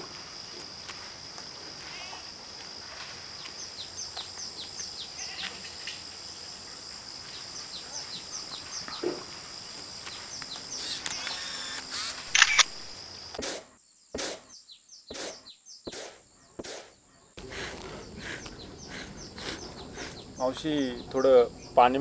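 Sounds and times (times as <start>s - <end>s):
insect drone: 0.0s - 22.0s
bird chirps: 10.0s - 22.0s
camera shutter clicks: 10.8s - 13.6s.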